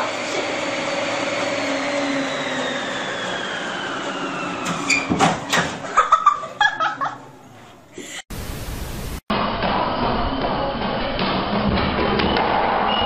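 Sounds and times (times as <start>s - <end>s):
treadmill motor whining: 0.0s - 6.0s.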